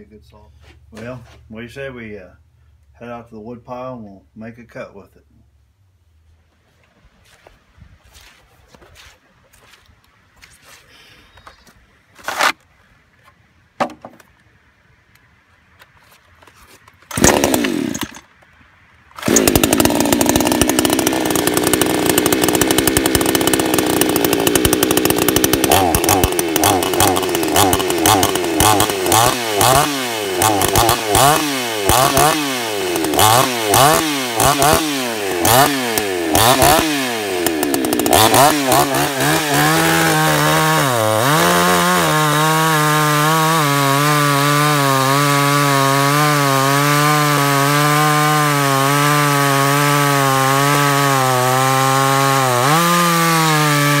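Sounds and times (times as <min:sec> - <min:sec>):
chainsaw cutting log: 0:17.0 - 0:18.4, 0:19.1 - 0:54.0
chainsaw engine running: 0:17.1 - 0:18.3, 0:19.2 - 0:54.0.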